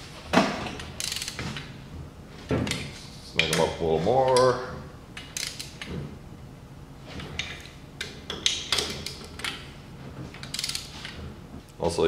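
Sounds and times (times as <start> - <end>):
socket ratchet clicking: 0.8 - 1.4, 5.2 - 5.9, 10.4 - 10.9.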